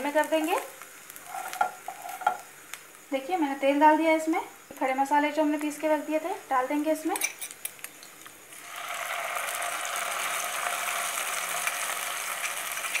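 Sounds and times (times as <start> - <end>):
hot oil sizzling: 0.0 - 13.0
spoon scraping glass bowl: 1.3 - 2.4.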